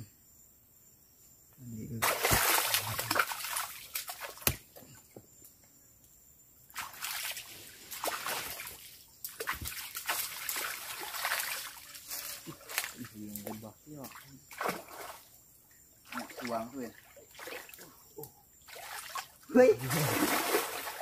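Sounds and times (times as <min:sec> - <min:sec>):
water splashing and sloshing: 0:02.0 - 0:04.9, 0:06.7 - 0:21.0.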